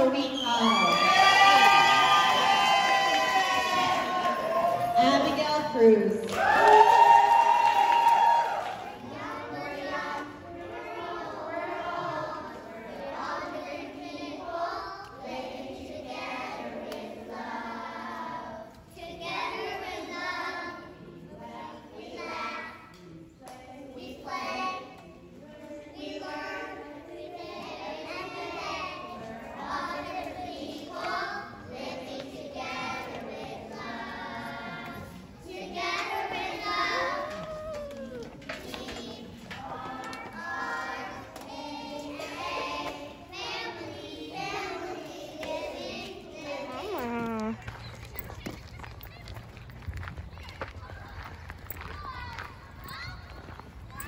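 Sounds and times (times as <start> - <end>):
children singing in a choir: 8.5 - 37.4, 38.4 - 46.9.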